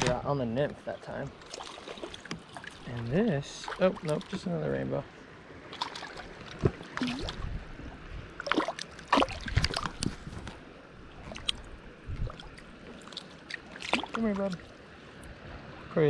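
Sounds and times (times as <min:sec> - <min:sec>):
stream water rushing: 0:00.8 - 0:16.0
fish splashing at water surface: 0:01.4 - 0:04.5, 0:05.7 - 0:07.5, 0:08.4 - 0:10.2, 0:11.2 - 0:14.8.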